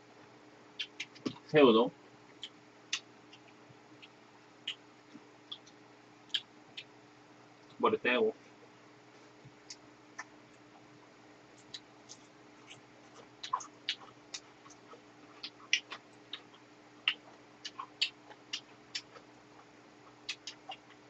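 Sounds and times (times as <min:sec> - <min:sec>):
chewing with clicks and smacks: 0:00.8 - 0:01.4, 0:02.3 - 0:06.9, 0:09.5 - 0:10.9, 0:11.5 - 0:21.0.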